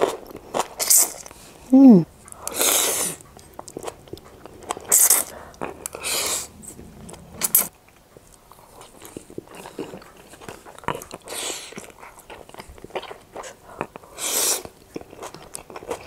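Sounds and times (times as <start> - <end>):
chewing and lip smacks: 2.2 - 16.0
slurping noodles: 2.4 - 3.2, 3.8 - 7.7.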